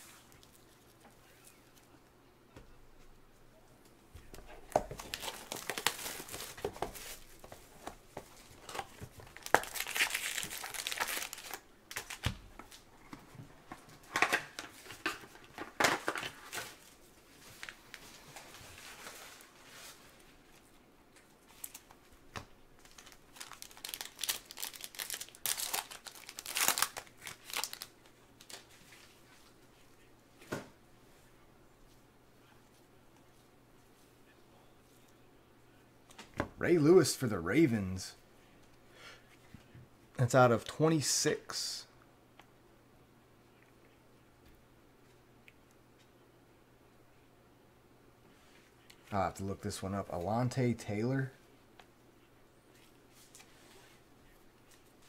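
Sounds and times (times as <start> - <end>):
foil wrappers crinkling and tearing: 4.8 - 7.4, 8.6 - 12.8, 22.8 - 28.8.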